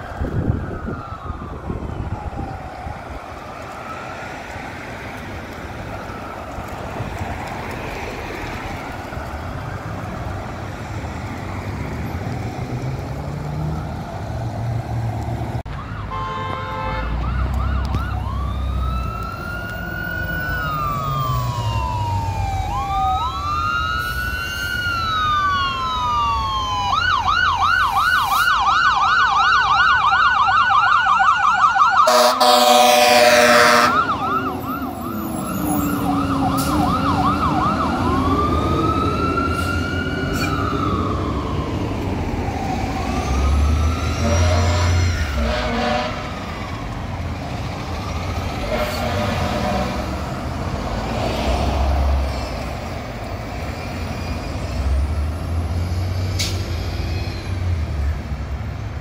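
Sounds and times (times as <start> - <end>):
fire engine siren wailing and yelping: 0.0 - 15.0, 15.6 - 59.0
air horn blast: 16.0 - 17.2, 32.1 - 34.2, 44.2 - 46.4, 48.6 - 50.2.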